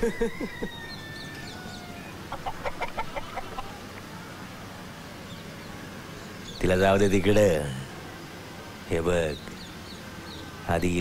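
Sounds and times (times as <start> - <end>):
chicken clucking: 2.3 - 4.1.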